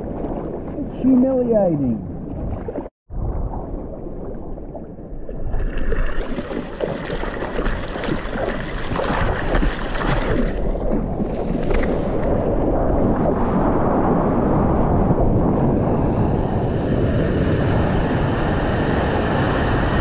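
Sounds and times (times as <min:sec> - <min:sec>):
water splashing around surfboard: 0:02.2 - 0:12.7
wind buffeting microphone: 0:07.4 - 0:20.0.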